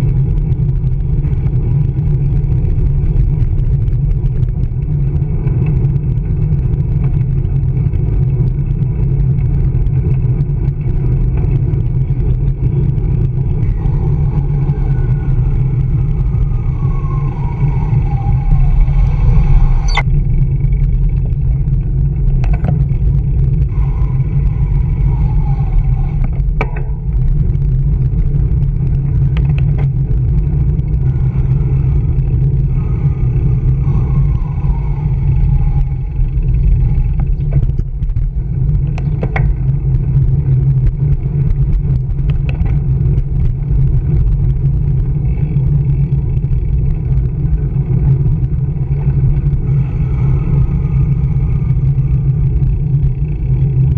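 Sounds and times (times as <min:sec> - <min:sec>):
car traffic: 0:00.0 - 0:53.9
wind buffeting: 0:00.0 - 0:53.9.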